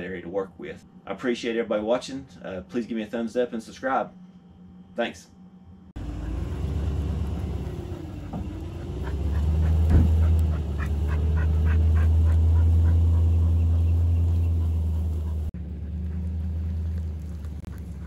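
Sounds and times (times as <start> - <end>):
truck engine rumbling: 6.0 - 18.0.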